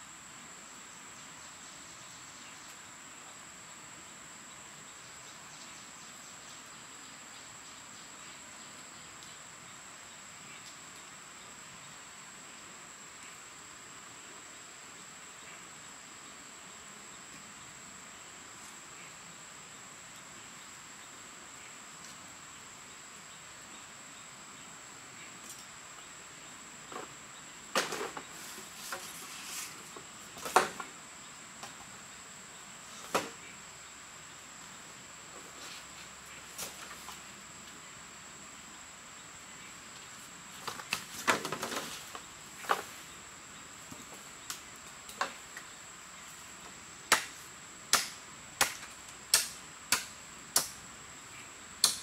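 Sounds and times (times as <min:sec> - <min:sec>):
insects droning: 0:00.0 - 0:52.0
bamboo poles knocking together: 0:27.7 - 0:28.3, 0:30.4 - 0:30.9, 0:40.6 - 0:42.9, 0:47.1 - 0:50.7.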